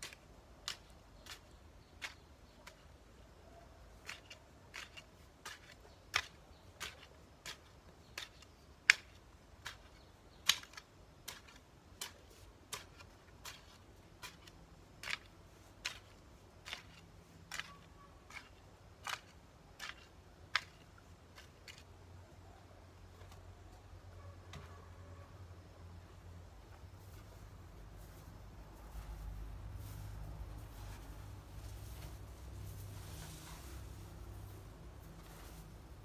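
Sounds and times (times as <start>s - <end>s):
hoe chopping into soil: 4.0s - 21.8s.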